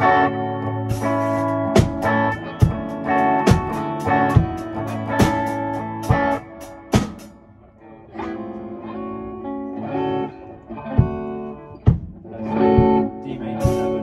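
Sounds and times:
electric guitar chords: 0:00.0 - 0:14.0
drum hits: 0:00.9 - 0:07.4, 0:10.9 - 0:14.0.

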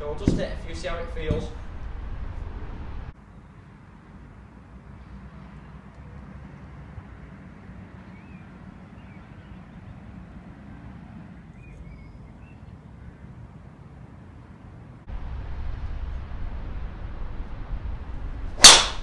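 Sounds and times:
low rumbling ambience: 0:00.0 - 0:03.2, 0:15.0 - 0:19.0
low background noise: 0:00.0 - 0:19.0
faint bird chirps: 0:08.1 - 0:09.9, 0:11.5 - 0:13.4.

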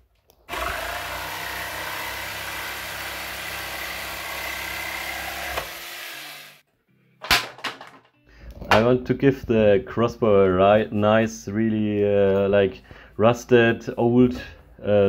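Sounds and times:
electric palm sander on wood: 0:00.5 - 0:06.6.

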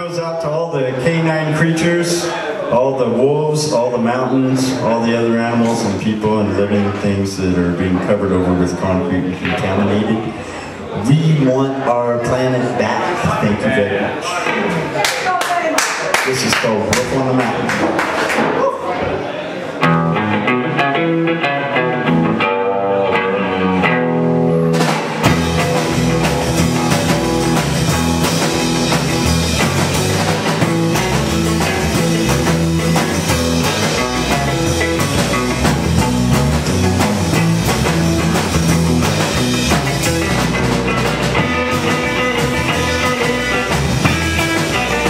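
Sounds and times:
bass guitar: 0:03.0 - 0:14.2, 0:19.8 - 0:45.0
drum kit: 0:19.8 - 0:45.0
electric guitar: 0:19.8 - 0:45.0.

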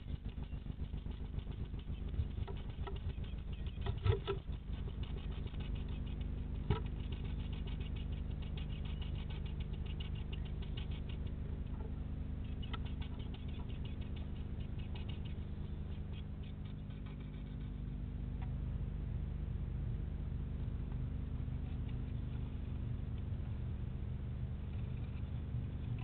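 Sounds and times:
birds tapping and scratching in nest box: 0:00.0 - 0:15.4.

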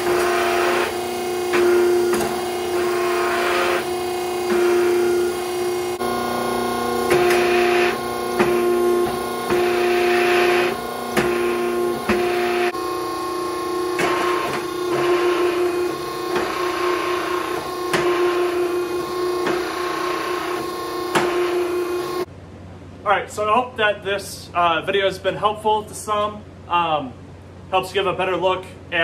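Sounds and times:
hydraulic pump humming: 0:00.0 - 0:22.3
hydraulic rushing hiss: 0:00.0 - 0:22.3.

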